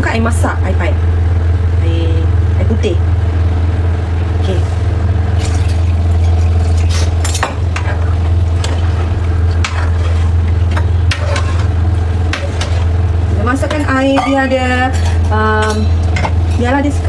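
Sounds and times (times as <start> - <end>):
steady low hum: 0.0 - 17.0
water pouring into a pan: 5.4 - 6.9.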